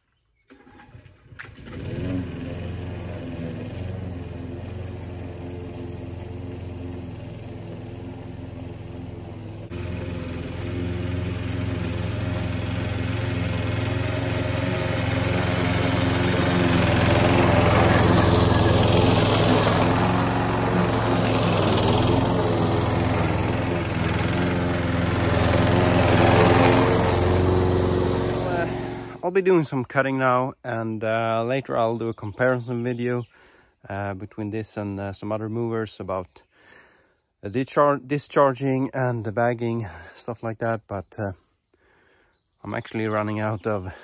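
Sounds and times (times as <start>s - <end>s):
lawn mower engine running: 0.5s - 29.4s.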